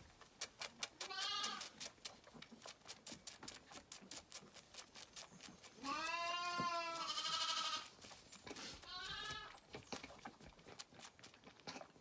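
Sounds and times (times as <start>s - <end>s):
lambs bleating: 1.0s - 1.7s, 5.8s - 7.9s, 8.7s - 9.6s.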